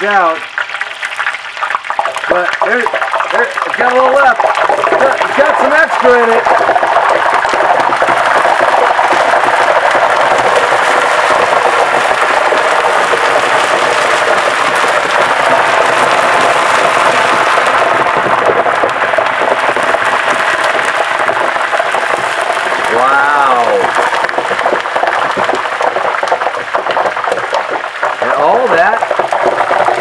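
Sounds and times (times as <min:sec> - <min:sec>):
hot oil sizzling and crackling: 0:00.0 - 0:30.0.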